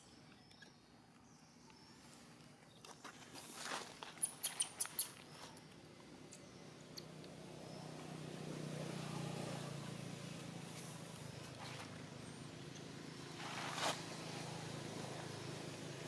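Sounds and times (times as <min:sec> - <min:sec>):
low engine hum: 0:05.1 - 0:16.0.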